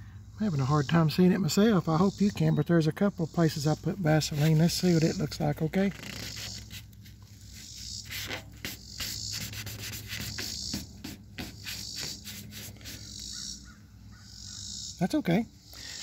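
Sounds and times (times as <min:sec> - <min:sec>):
paper towel rubbing on metal: 0:03.4 - 0:13.4
paper crinkling: 0:04.2 - 0:13.0.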